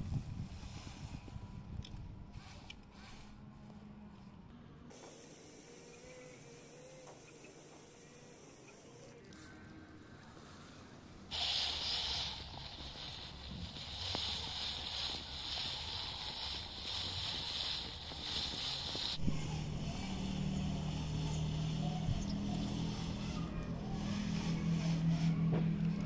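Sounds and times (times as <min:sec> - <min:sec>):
toy car motor and gears whining: 0:05.2 - 0:09.4, 0:11.3 - 0:26.0
low motor hum: 0:12.2 - 0:26.0.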